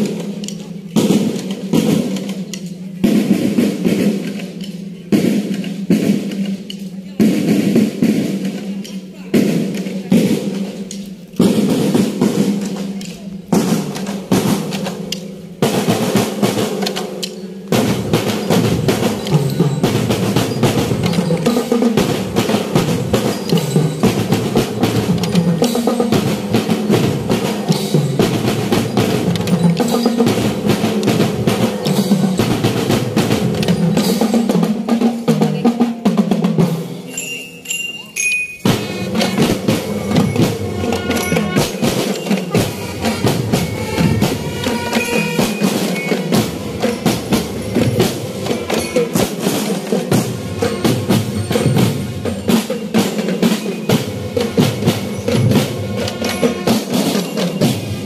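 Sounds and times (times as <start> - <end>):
drumline playing cadence: 0.0 - 58.0
high ringing notes: 37.0 - 58.0.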